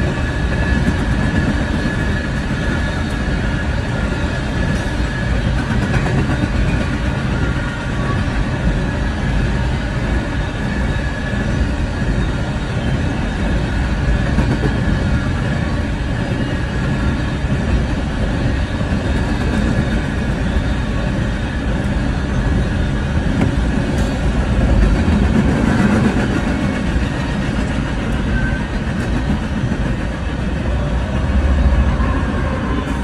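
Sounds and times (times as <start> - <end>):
train wheels rumbling on rails: 0.0 - 33.0.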